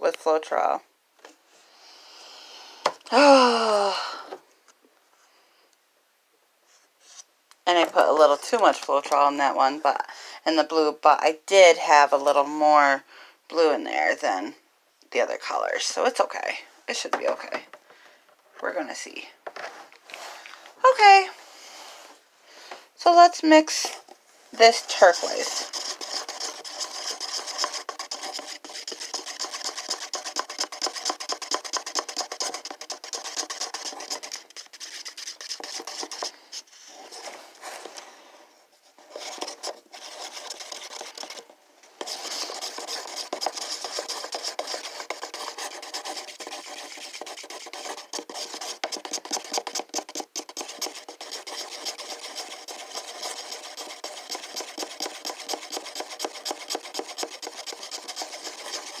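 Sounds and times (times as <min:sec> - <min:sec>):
stick stirring paint in paper cup: 0:23.1 - 0:38.0, 0:38.8 - 0:59.0.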